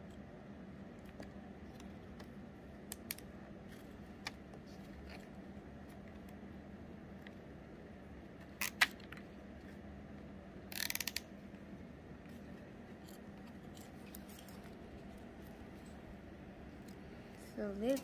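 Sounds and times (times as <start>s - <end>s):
cable tie ratcheting clicks: 10.7s - 11.3s.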